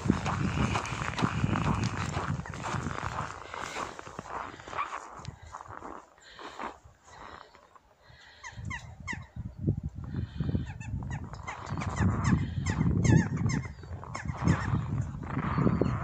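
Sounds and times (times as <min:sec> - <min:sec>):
footsteps crunching in snow: 0:00.0 - 0:07.8
birds chirping: 0:00.0 - 0:16.0.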